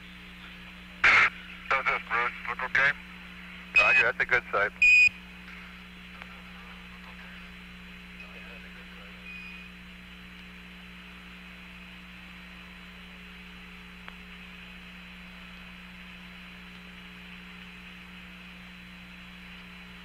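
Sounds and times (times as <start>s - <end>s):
radio hum and hiss: 0.0s - 20.0s
faint high steady tone: 3.8s - 4.0s.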